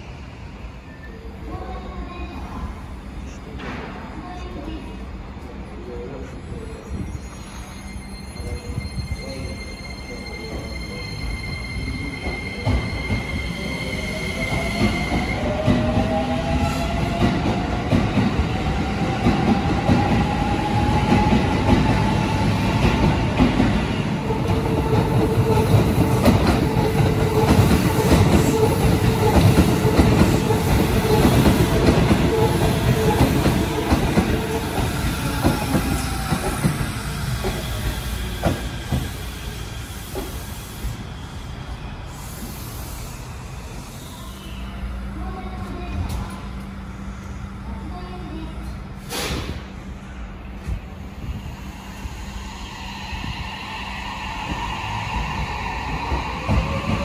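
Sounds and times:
long steady brake squeal: 0:06.5 - 0:14.2, 0:37.3 - 0:45.1
electric train whine: 0:49.7 - 0:57.0.

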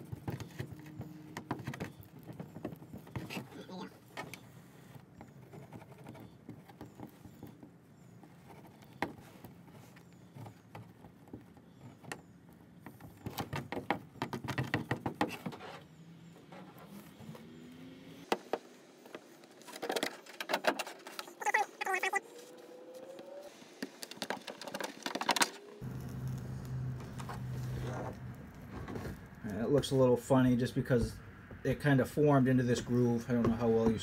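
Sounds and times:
plastic welder scraping and crackling: 0:23.6 - 0:30.0.

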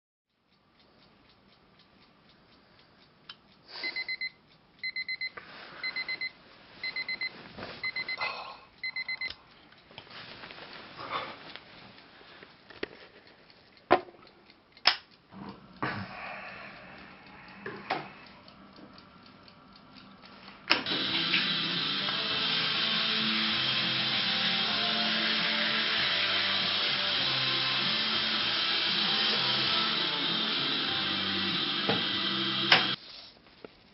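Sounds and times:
alarm clock beeping: 0:03.8 - 0:09.4, 0:20.8 - 0:33.0.

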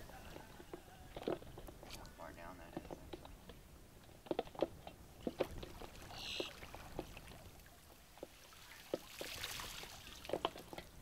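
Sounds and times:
water sloshing: 0:05.2 - 0:11.0.

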